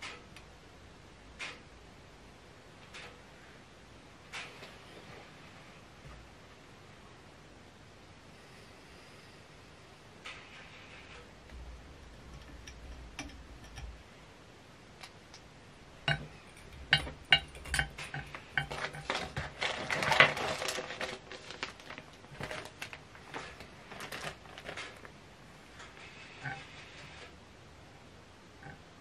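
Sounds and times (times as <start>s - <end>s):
clatter and rustle: 16.1s - 27.4s.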